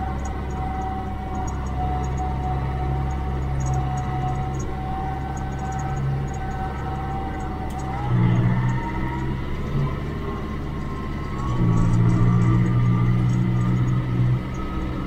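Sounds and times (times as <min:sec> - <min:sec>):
thin whine: 0:00.0 - 0:15.0
tractor diesel engine running: 0:00.0 - 0:15.0.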